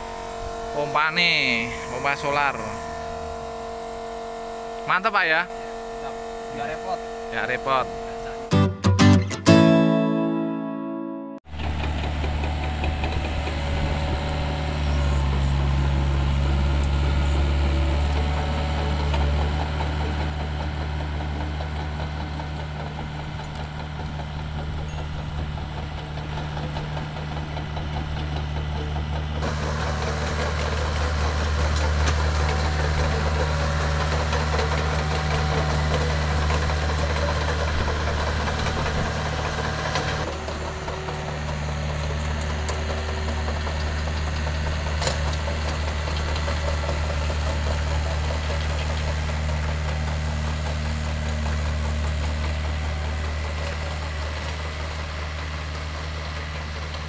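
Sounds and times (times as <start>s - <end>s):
diesel engine humming: 11.5s - 57.0s.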